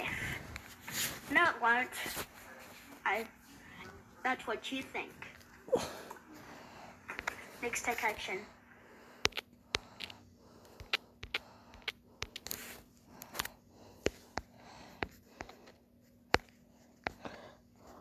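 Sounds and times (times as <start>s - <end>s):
faint steady hum: 0.0s - 18.0s
fingers tapping phone touchscreen: 9.2s - 12.7s.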